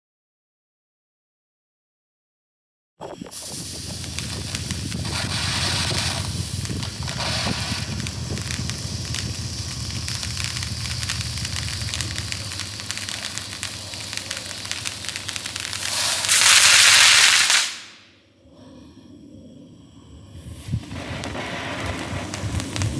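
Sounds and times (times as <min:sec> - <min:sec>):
firework fountain hissing and crackling: 0:03.0 - 0:18.2, 0:20.3 - 0:22.9.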